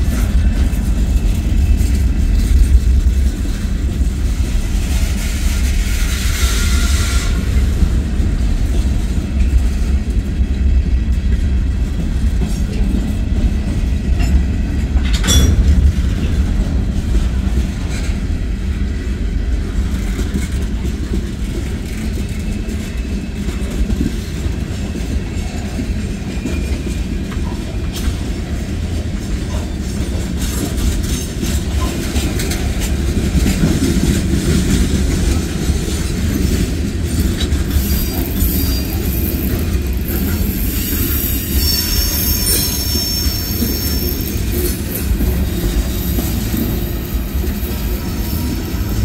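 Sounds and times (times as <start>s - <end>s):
train wheels rumbling on rails: 0.0s - 49.0s
high wheel squeal: 37.7s - 45.4s.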